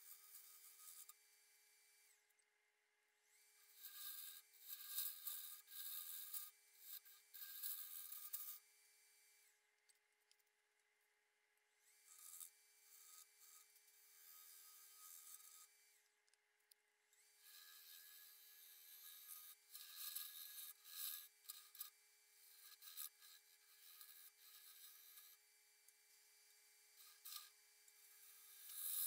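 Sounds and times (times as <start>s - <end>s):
lathe gouge cutting wood: 3.8s - 7.0s, 17.4s - 21.8s, 22.4s - 25.4s.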